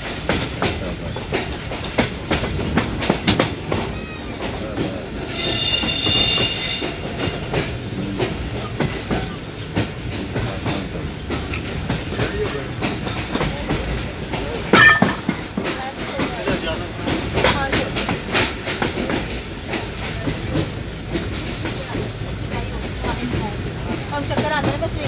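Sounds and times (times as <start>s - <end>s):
train coach rumble: 0.0s - 25.0s
wheels clicking over rail joints: 0.0s - 25.0s.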